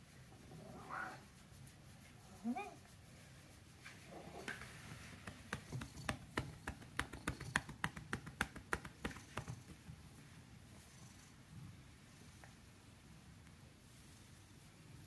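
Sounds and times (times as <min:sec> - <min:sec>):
hands patting cat: 0:04.5 - 0:10.3.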